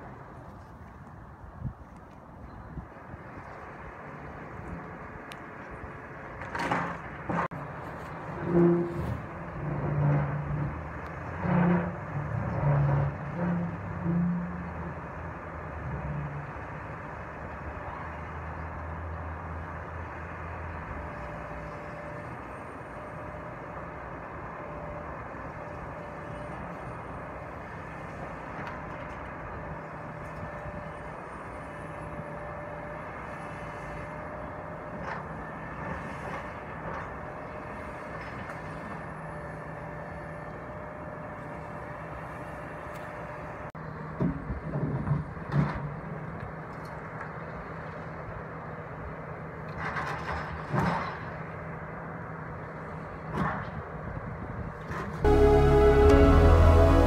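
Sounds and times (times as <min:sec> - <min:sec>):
excavator diesel engine running: 0:55.2 - 0:57.0.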